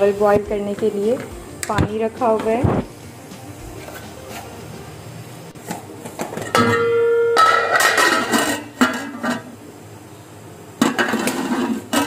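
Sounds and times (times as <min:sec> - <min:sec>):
lid scraping pot rim: 0:03.8 - 0:04.6
metal lid clanging on pot: 0:06.2 - 0:09.5, 0:10.8 - 0:12.0.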